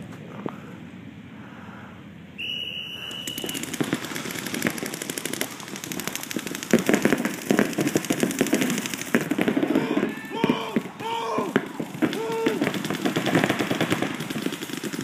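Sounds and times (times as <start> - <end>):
paintball markers firing rapidly: 3.2 - 15.0.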